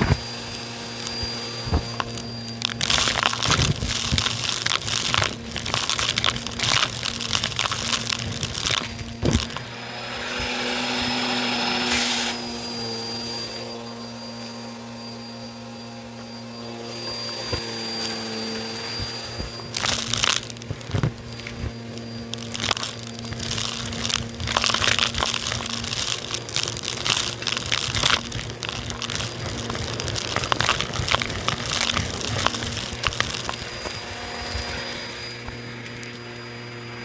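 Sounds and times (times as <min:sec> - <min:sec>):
debris clattering up vacuum hose: 0:00.0 - 0:36.7
vacuum motor humming and whining: 0:00.0 - 0:37.0
rushing suction hiss: 0:09.8 - 0:12.4.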